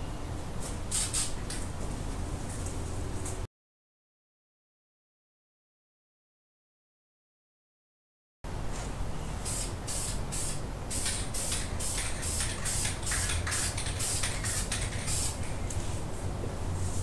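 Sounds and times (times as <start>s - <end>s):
aerosol spray hissing bursts: 0.9s - 1.4s, 9.4s - 15.6s.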